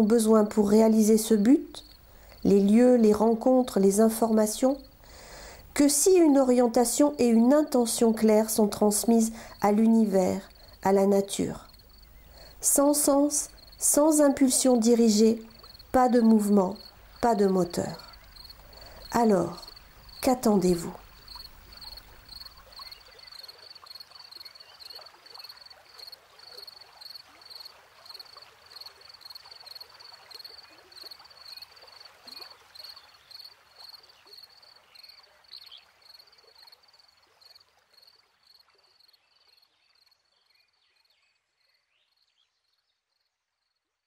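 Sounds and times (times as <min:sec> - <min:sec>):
soft hiss: 0:00.0 - 0:25.4.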